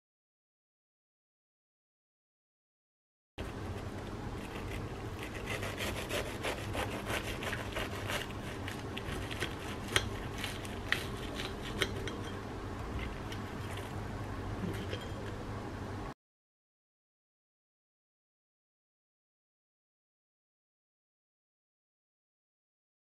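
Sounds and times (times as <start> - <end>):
knife sawing through crisp crust: 3.8 - 12.1.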